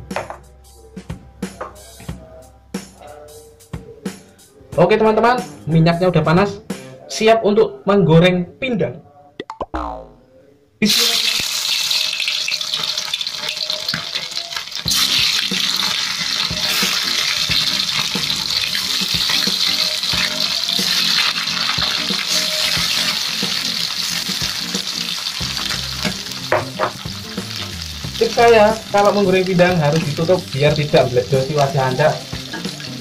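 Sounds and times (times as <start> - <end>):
fish sizzling in hot oil: 10.9 - 33.0.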